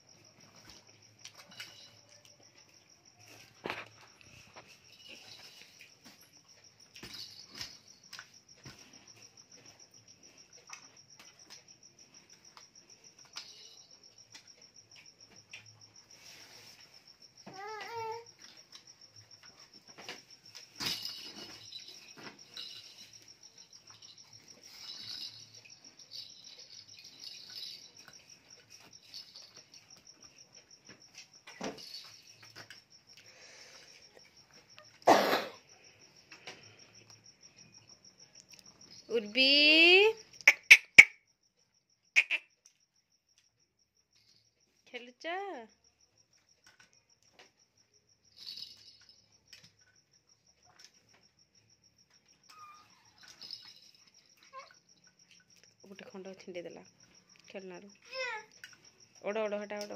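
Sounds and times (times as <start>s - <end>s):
insect chirping trill: 0.0s - 59.9s.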